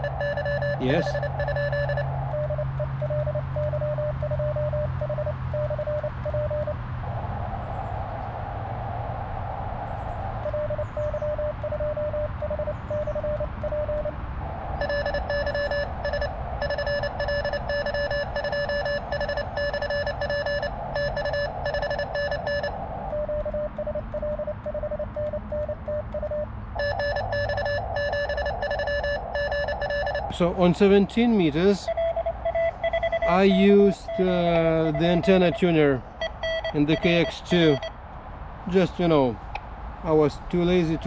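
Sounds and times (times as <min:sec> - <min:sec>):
buzzy morse code tone: 0:00.0 - 0:06.8, 0:10.4 - 0:14.2, 0:14.8 - 0:38.0
soft clean morse code tone: 0:00.0 - 0:06.8, 0:10.4 - 0:14.2, 0:14.8 - 0:38.0
receiver hiss: 0:00.0 - 0:08.1, 0:09.4 - 0:25.9, 0:26.8 - 0:37.9.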